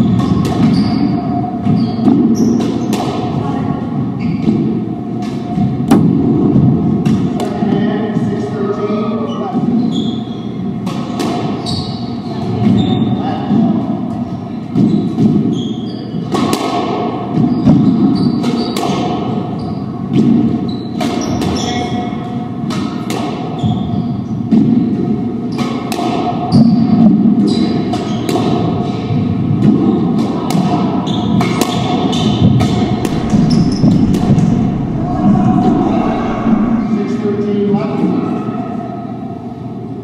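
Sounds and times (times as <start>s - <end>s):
steady hum: 32.7s - 37.4s.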